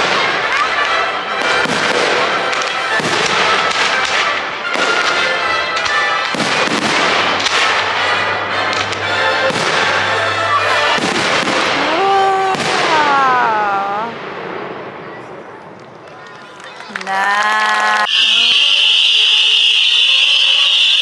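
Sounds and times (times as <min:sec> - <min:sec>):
music: 0:00.0 - 0:12.0
fireworks bursting: 0:00.0 - 0:15.8, 0:18.0 - 0:21.0.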